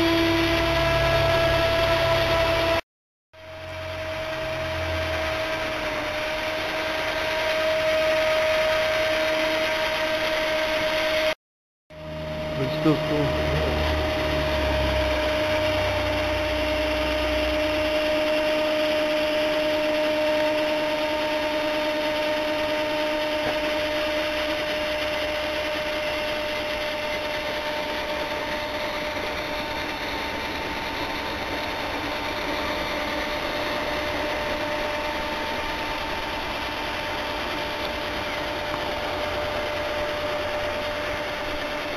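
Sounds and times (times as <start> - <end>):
drill motor whine: 0.0 - 2.8, 3.4 - 41.9
impeller churning snow: 12.4 - 41.9.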